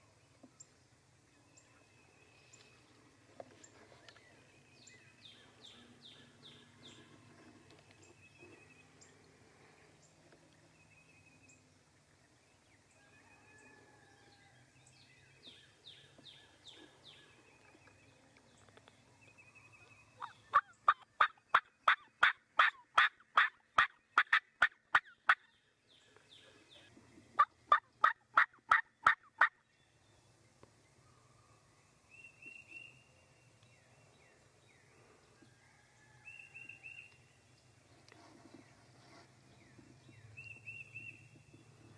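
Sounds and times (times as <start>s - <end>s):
faint songbird notes: 0.0s - 22.2s, 29.6s - 41.9s
turkey call yelping: 20.2s - 25.4s.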